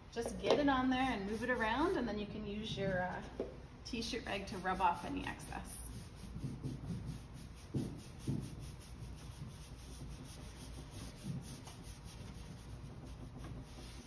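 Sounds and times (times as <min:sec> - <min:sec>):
wax brush scrubbing wood: 0:00.9 - 0:02.0, 0:04.3 - 0:14.0
soft low thumps: 0:06.0 - 0:09.6.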